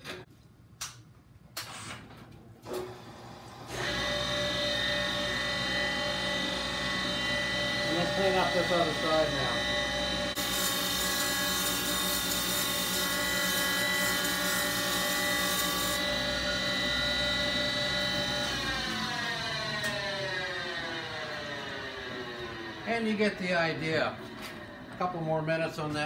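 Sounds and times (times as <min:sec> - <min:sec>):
grinder whine: 0:02.7 - 0:26.0.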